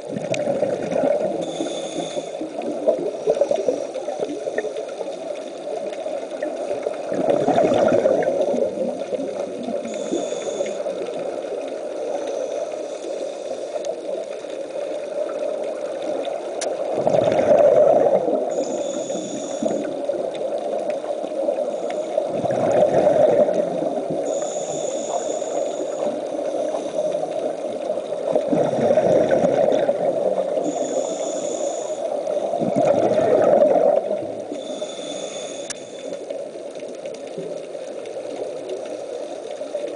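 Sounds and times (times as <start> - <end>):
constant underwater rush: 0.0 - 39.9
exhaled bubbles gurgling: 0.0 - 39.9
regulator inhale hiss: 1.2 - 5.1, 8.2 - 14.9, 18.2 - 22.4, 23.5 - 29.0, 30.4 - 32.6, 34.4 - 36.6.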